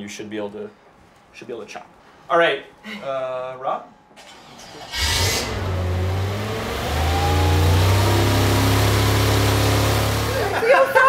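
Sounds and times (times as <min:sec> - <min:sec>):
hydraulic power unit engine running: 0:04.2 - 0:10.6.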